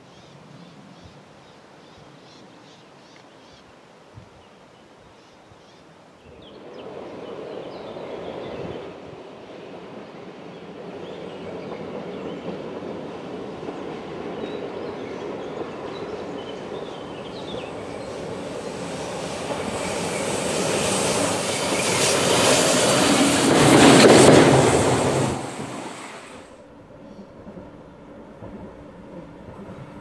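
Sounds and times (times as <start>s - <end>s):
locomotive wheels on rails: 6.6s - 30.0s.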